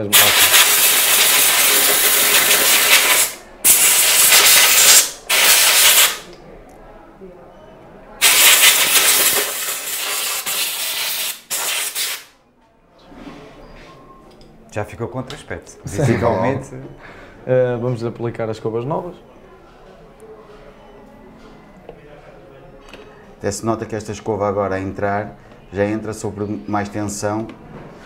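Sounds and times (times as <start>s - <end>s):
compressed air blow gun hissing: 0.2s - 6.2s, 8.2s - 12.3s.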